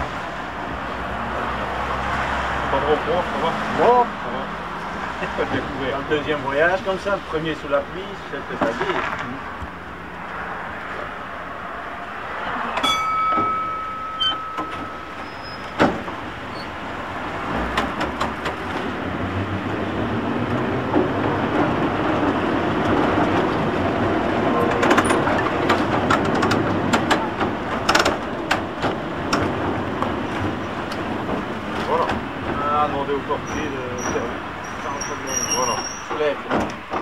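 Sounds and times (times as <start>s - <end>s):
electric tram rumbling: 0.0s - 37.0s
wheels clicking over rail joints: 12.7s - 37.0s
short high tone: 12.8s - 15.6s.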